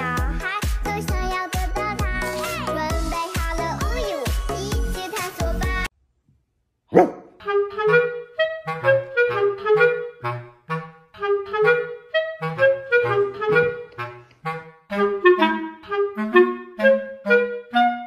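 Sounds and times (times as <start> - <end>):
woodwind melody over bass line: 7.4 - 18.0.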